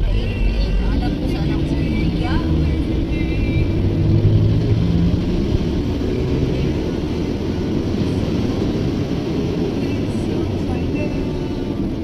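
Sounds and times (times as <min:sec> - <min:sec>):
road traffic engines rumbling: 0:00.0 - 0:12.0
steady engine note: 0:00.0 - 0:12.0.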